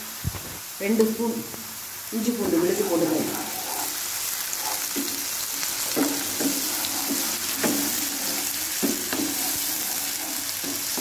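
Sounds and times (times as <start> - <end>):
vegetables sizzling in oil: 0.0 - 11.0
spatula scraping pan: 2.4 - 11.0.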